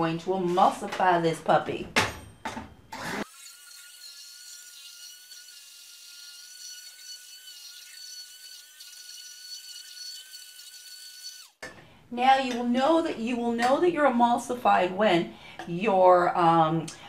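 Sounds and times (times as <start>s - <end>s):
immersion blender whining: 2.9s - 11.6s.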